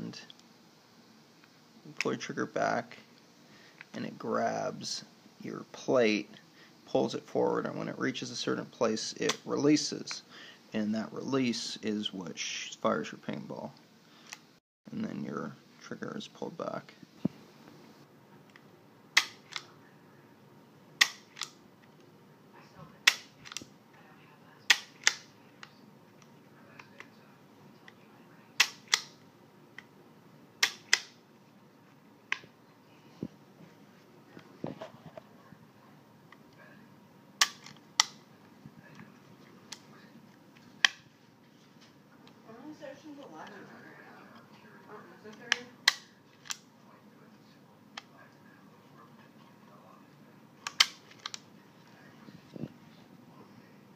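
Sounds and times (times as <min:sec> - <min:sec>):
trigger mechanism clicking: 0:21.0 - 0:21.6.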